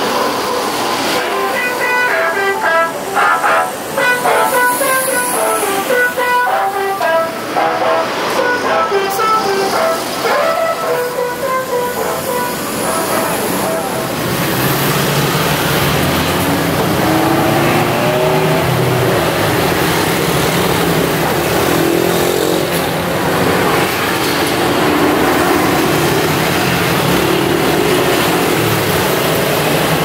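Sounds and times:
bus engine idling: 0:00.0 - 0:17.0
steady rushing noise: 0:00.0 - 0:21.8.

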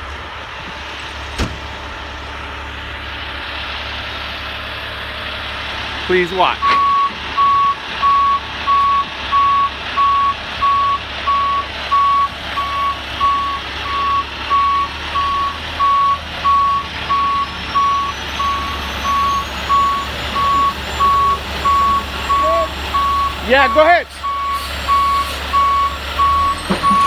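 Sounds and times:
low engine rumble: 0:00.0 - 0:27.0
truck backup alarm beeping: 0:06.2 - 0:27.0.

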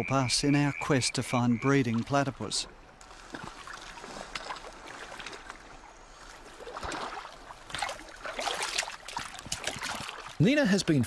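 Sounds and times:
water splashing and dripping: 0:01.7 - 0:10.5.

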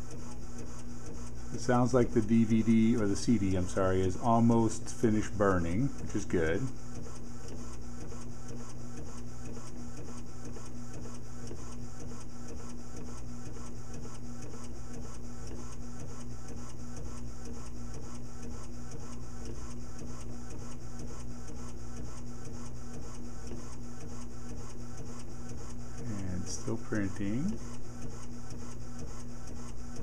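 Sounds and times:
disc printer mechanical hum: 0:00.0 - 0:30.0.

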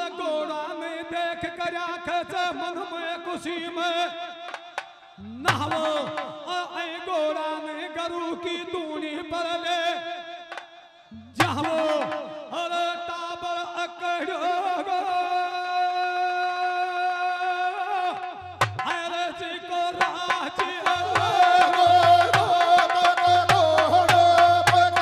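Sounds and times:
man singing through a pa: 0:00.0 - 0:25.0
drum beat: 0:05.5 - 0:06.4, 0:11.4 - 0:12.4, 0:18.6 - 0:19.0, 0:20.0 - 0:25.0
jingling percussion: 0:20.0 - 0:25.0.

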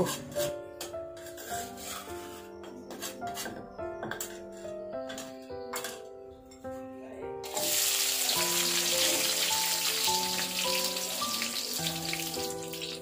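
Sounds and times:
background music: 0:00.0 - 0:13.0
onion sizzling in hot oil: 0:07.4 - 0:13.0.

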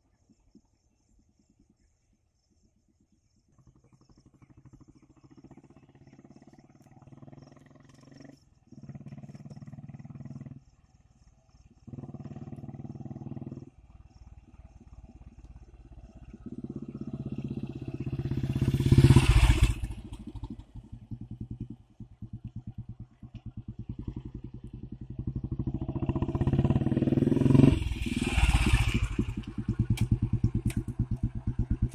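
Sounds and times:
motorcycle engine passing: 0:03.8 - 0:31.9.

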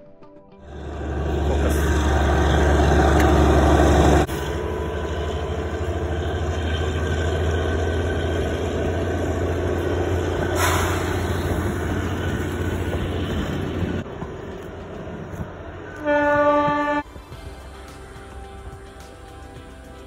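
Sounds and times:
passing train rumble: 0:00.6 - 0:20.0
train horn: 0:15.9 - 0:17.2.

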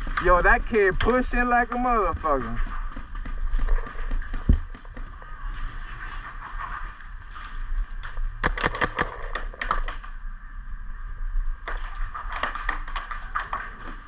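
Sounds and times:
paintball markers popping: 0:00.0 - 0:05.1.

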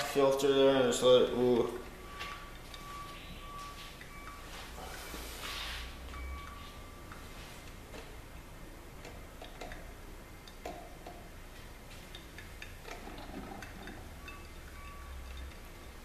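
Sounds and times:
coffee maker ticks and pops: 0:09.0 - 0:11.3, 0:12.1 - 0:15.6.

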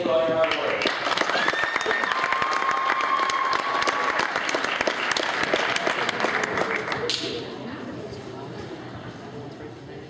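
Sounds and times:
crowd applauding: 0:00.4 - 0:07.4.

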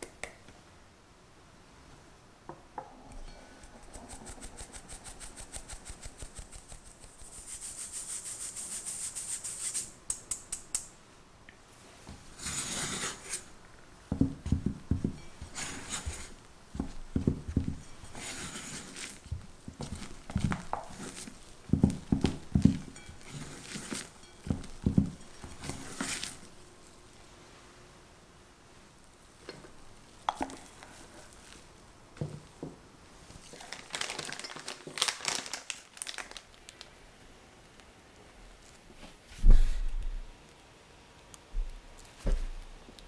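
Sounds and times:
flour hissing through mesh: 0:03.9 - 0:10.3
spatula scraping glass bowl: 0:12.4 - 0:13.5, 0:15.1 - 0:16.4, 0:17.8 - 0:19.2, 0:22.6 - 0:26.6
sieve tapping: 0:14.1 - 0:26.6.

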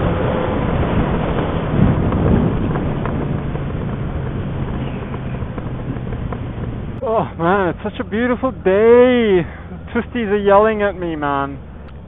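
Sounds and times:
wind rush on microphone: 0:00.0 - 0:07.5
motorcycle engine with open exhaust: 0:00.0 - 0:10.0.

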